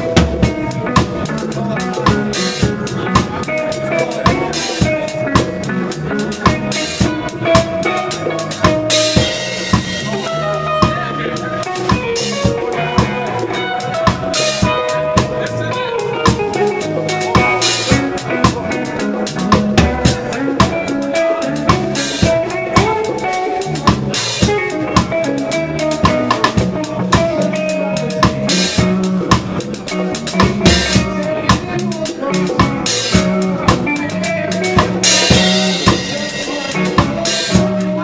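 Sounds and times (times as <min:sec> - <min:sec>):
drum hits and rimshots: 0:00.0 - 0:38.0
reggae band playing: 0:00.0 - 0:38.0.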